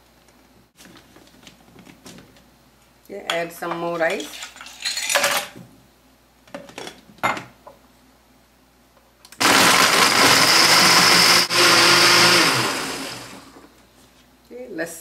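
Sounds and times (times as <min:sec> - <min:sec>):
blender crushing ice: 0:09.4 - 0:13.6.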